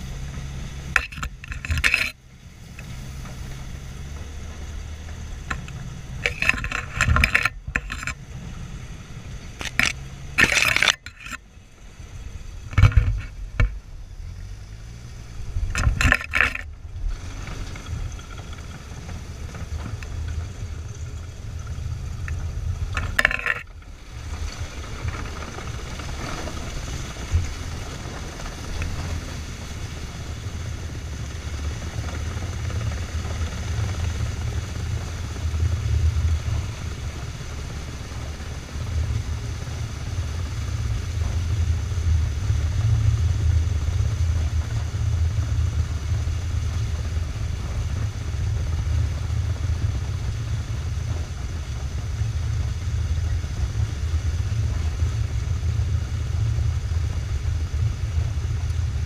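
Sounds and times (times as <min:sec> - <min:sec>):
bushes scraping along hull: 0:00.0 - 0:04.8, 0:05.4 - 0:11.6, 0:15.0 - 0:20.4, 0:21.6 - 0:30.7
tracked vehicle engine droning: 0:00.0 - 0:59.0.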